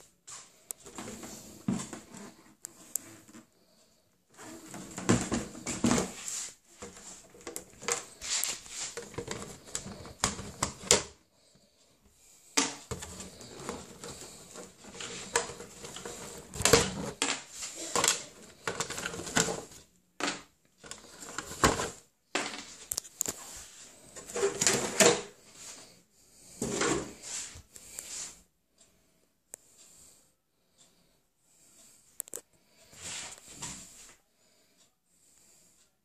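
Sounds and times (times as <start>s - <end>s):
hands handling plastic: 4.4s - 11.1s, 12.6s - 23.6s.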